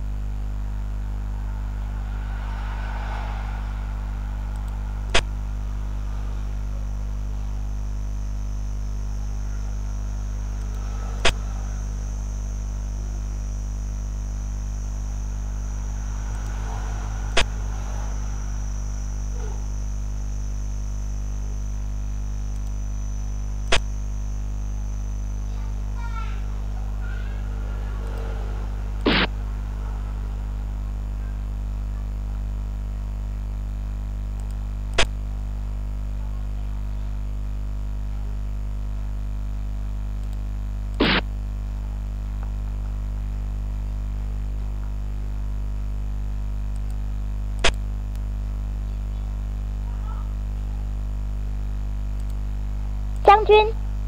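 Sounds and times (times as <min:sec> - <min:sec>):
low electrical hum: 0:00.0 - 0:54.0.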